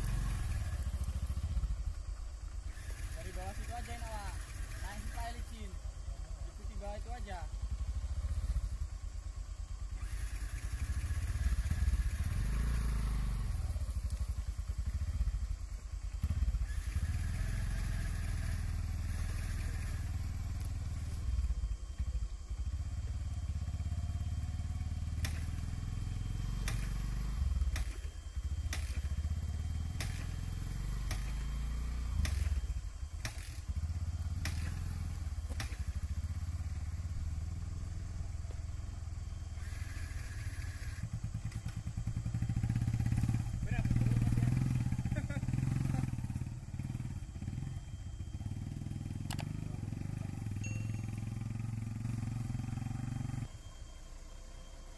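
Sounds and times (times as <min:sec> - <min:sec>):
small motorcycle engines revving: 0:00.0 - 0:54.9
sharp clicks: 0:25.2 - 0:25.7, 0:26.6 - 0:27.0, 0:27.7 - 0:29.1, 0:29.9 - 0:30.4, 0:31.0 - 0:31.5, 0:32.2 - 0:32.6, 0:34.4 - 0:36.0, 0:49.2 - 0:49.6.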